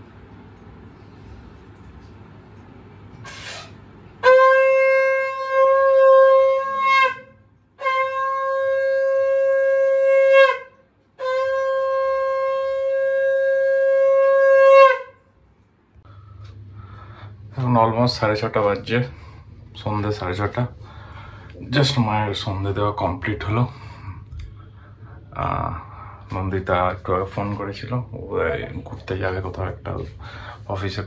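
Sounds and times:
conch shell blasts: 3.2s - 15.2s.

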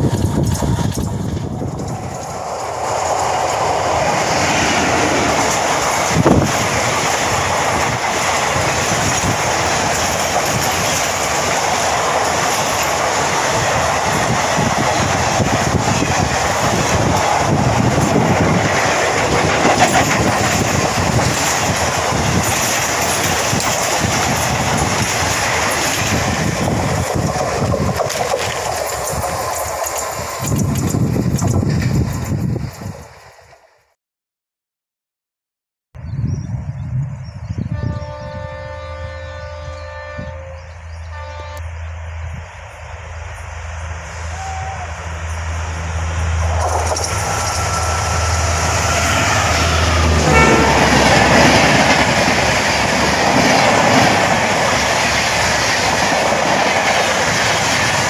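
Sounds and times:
wheels clattering over rail joints: 0.0s - 33.6s, 45.1s - 58.0s
train passing at speed: 0.0s - 33.9s, 36.5s - 58.0s.

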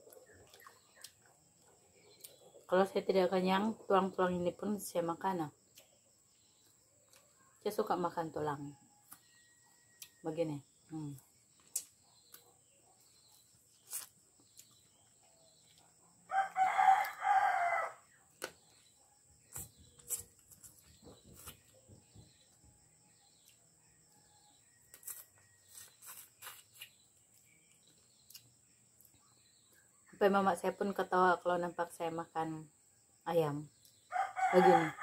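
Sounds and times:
chicken bones being chewed: 13.7s - 14.9s, 24.9s - 28.5s
rooster crowing: 16.3s - 18.1s, 34.1s - 35.0s.

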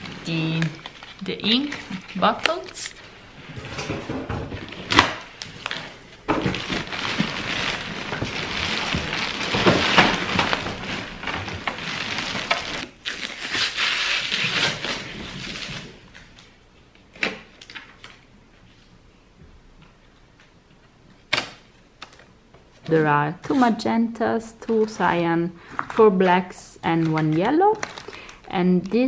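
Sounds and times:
plastic wrap crinkling: 0.0s - 3.9s, 4.6s - 16.6s, 26.8s - 29.0s.

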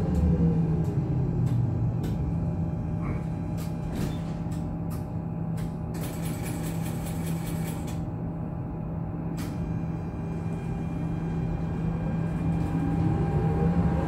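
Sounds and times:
tram interior hum: 0.0s - 14.0s
traction motor whine: 10.2s - 14.0s.

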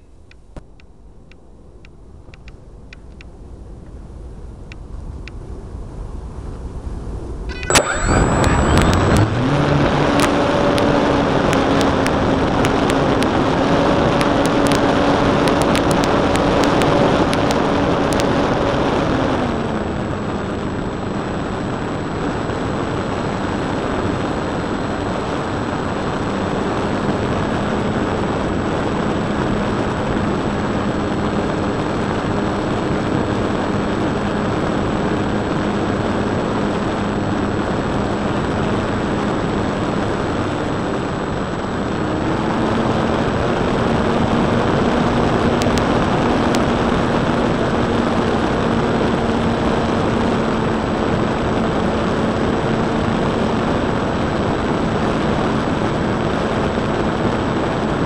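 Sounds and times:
sharp clicks: 0.0s - 3.4s
model plane electric motor drone: 7.5s - 25.3s, 26.1s - 58.0s.

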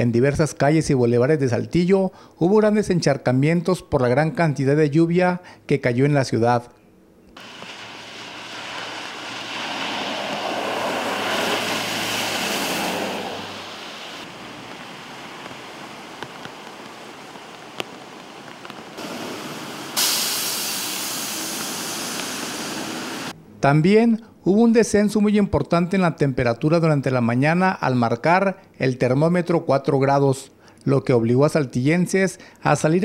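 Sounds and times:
tyres hissing through water: 7.4s - 23.4s.

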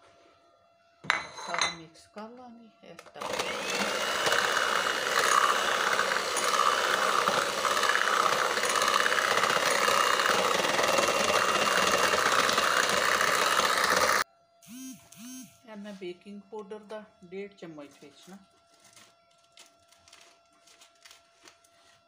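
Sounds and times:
electric hand mixer whining: 3.2s - 15.4s.

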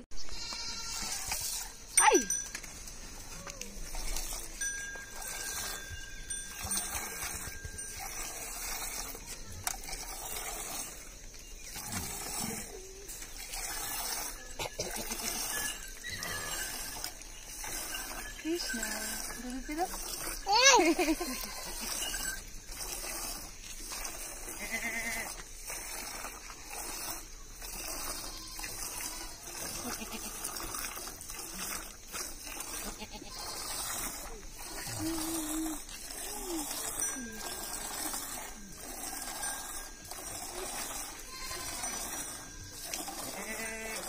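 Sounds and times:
goat bleating: 0.2s - 1.3s, 24.6s - 25.3s, 28.1s - 30.4s, 32.8s - 33.8s, 34.5s - 35.4s, 41.0s - 42.3s, 43.2s - 44.0s
milk squirting into steel pail: 0.9s - 44.0s.

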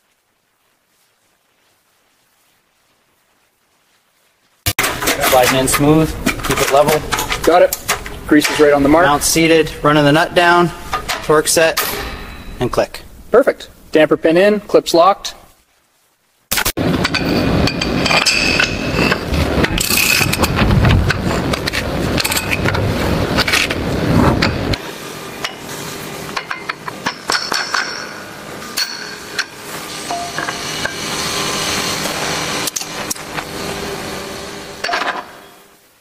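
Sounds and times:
heavy metal parts clanking: 4.8s - 9.5s, 10.9s - 12.8s, 16.8s - 24.8s, 26.3s - 31.2s, 34.8s - 35.6s
steel parts clinking: 17.0s - 22.8s, 26.3s - 31.2s.

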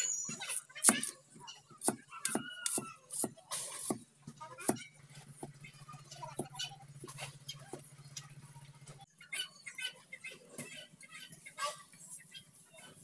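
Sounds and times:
knife chopping on wooden board: 1.8s - 4.0s.

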